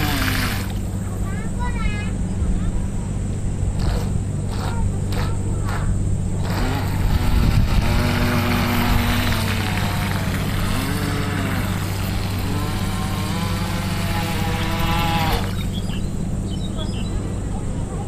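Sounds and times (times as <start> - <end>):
electric motor whining: 0.0 - 0.8, 3.8 - 16.0
hull hissing across water: 0.0 - 1.0, 3.7 - 16.4.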